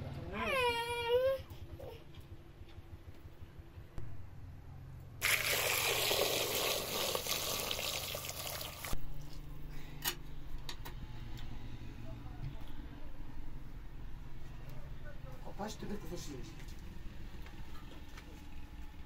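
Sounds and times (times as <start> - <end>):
liquid pouring: 5.2 - 9.3.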